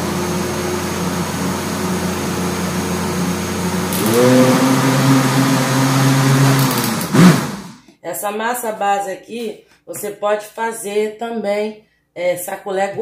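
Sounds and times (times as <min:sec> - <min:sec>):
blender motor running: 0:00.0 - 0:07.8.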